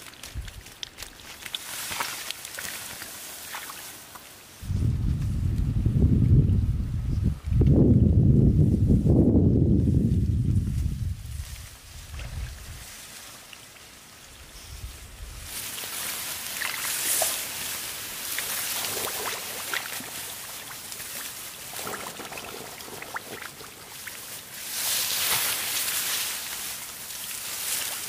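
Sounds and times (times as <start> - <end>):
water splashes and drips: 0.0 - 4.4, 12.0 - 14.2, 15.5 - 28.0
water pouring and trickling: 0.4 - 4.2, 16.4 - 24.5.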